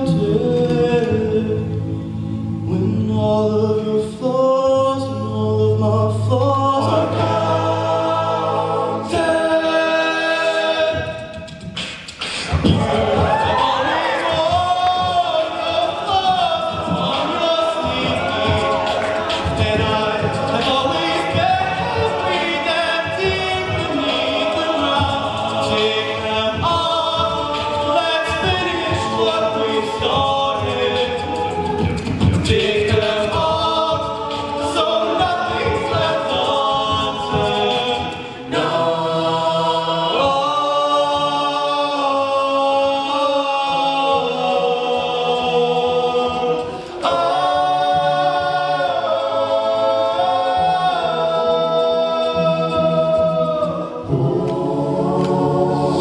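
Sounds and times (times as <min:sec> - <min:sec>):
male group singing in harmony: 0:00.0 - 0:56.0
vocal percussion beats: 0:00.0 - 0:56.0.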